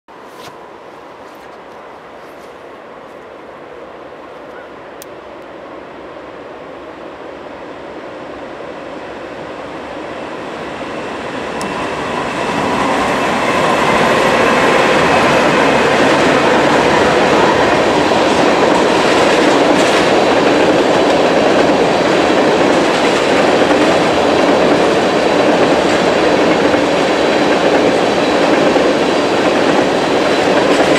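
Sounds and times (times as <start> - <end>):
diesel locomotives approaching: 0.6 - 30.9
train wheels on rails: 7.6 - 30.9.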